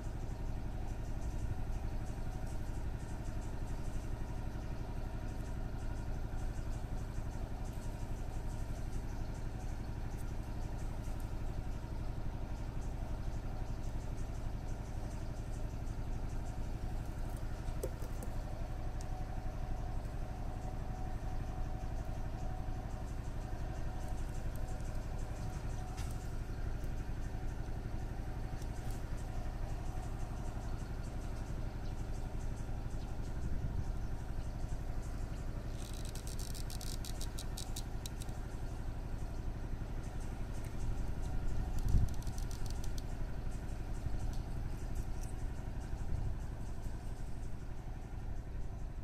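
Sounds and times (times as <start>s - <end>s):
low engine hum: 0.0s - 49.0s
fine rapid clicking: 35.1s - 39.4s, 40.0s - 45.9s.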